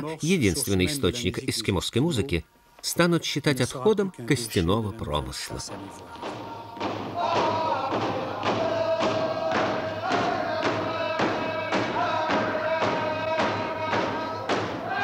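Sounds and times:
men singing in unison: 0:06.0 - 0:15.0
frame drums beating: 0:06.2 - 0:15.0.

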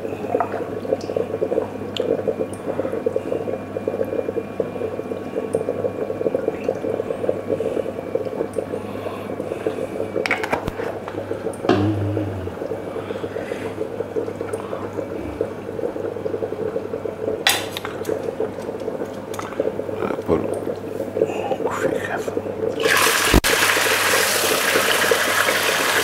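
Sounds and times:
knocks: 0:11.7 - 0:12.3.

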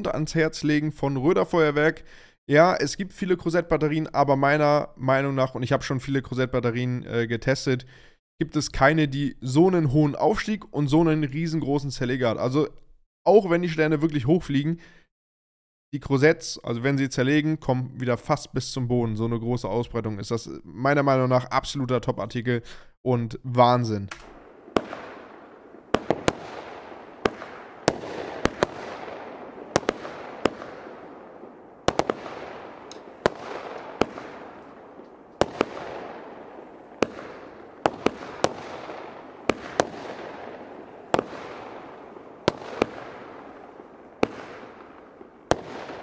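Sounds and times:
firework battery sharp reports: 0:24.2 - 0:46.0.

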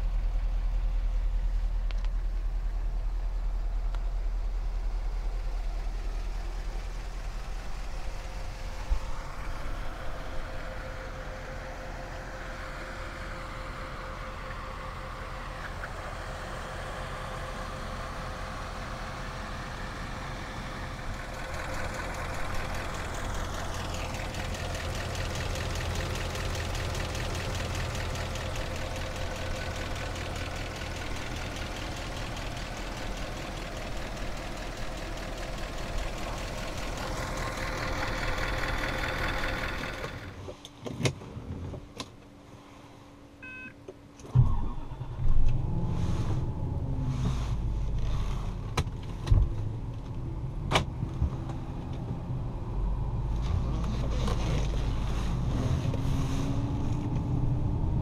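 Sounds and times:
car engine idling: 0:00.0 - 0:40.5.

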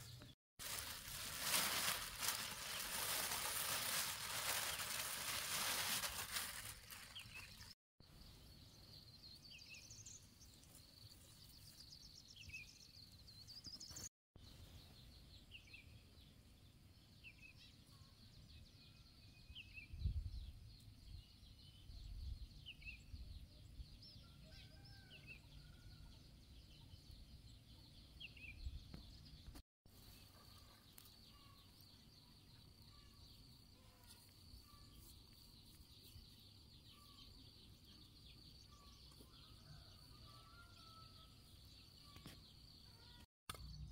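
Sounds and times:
small birds chirping: 0:00.0 - 0:43.9
loud rustle: 0:00.6 - 0:07.4.

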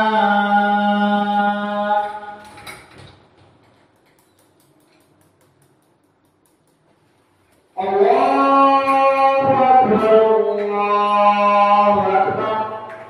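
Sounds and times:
voice chanting slow melody: 0:07.8 - 0:13.0.

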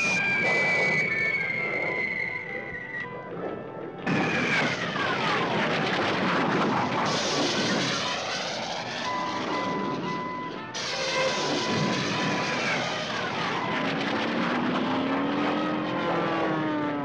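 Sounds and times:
whistle sliding down in pitch: 0:00.0 - 0:03.1.

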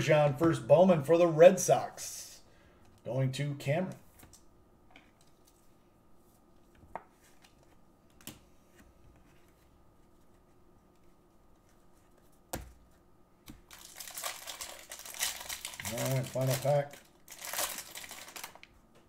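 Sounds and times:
wrapper crinkling: 0:13.6 - 0:18.8.

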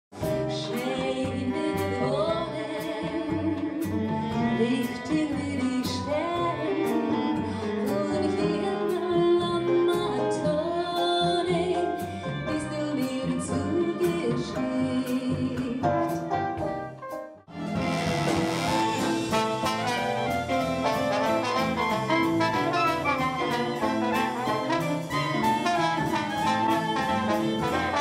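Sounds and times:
double bass: 0:00.1 - 0:28.0
drums: 0:00.1 - 0:28.0
woman singing: 0:00.4 - 0:16.2
clarinet: 0:16.0 - 0:28.0.

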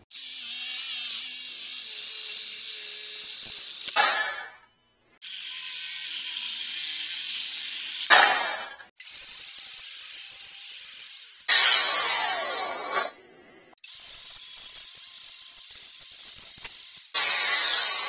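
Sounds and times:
angle grinder cutting metal: 0:00.1 - 0:04.6, 0:05.2 - 0:13.2, 0:13.8 - 0:18.0.

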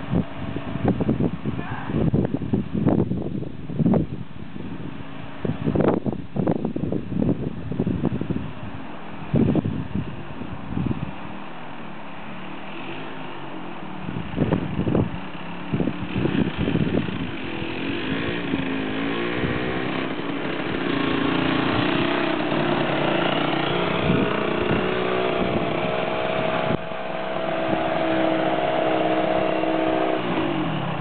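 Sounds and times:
moped engine revving: 0:12.4 - 0:31.0.

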